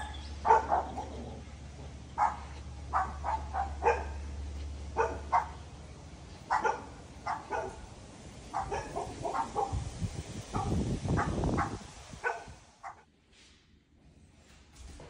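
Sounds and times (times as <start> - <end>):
dog barking: 0.4 - 1.3, 2.2 - 4.3, 5.0 - 5.6, 6.5 - 7.9, 8.5 - 9.8, 10.5 - 13.0.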